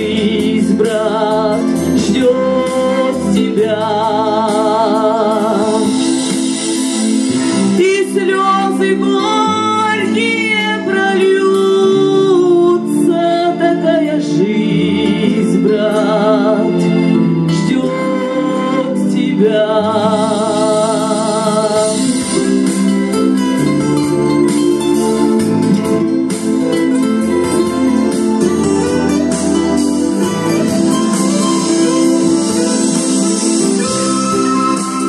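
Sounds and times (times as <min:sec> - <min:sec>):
woman singing with vibrato: 0:00.0 - 0:06.3, 0:07.6 - 0:22.4
acoustic guitar accompaniment: 0:00.0 - 0:35.0.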